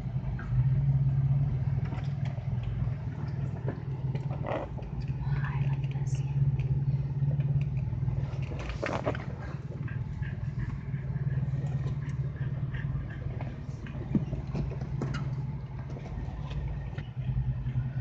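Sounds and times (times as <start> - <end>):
engine running at low speed: 0.0 - 18.0
clicks and knocks from rocks: 7.5 - 9.6.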